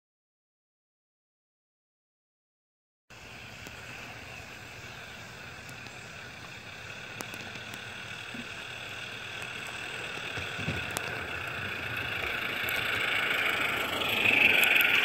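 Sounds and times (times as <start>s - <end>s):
model steam train hissing and rolling: 3.1s - 15.0s.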